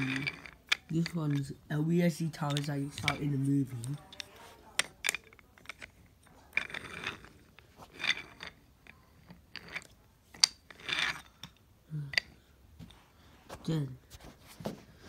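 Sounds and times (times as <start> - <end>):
toy train handling scrapes: 0.0 - 11.6.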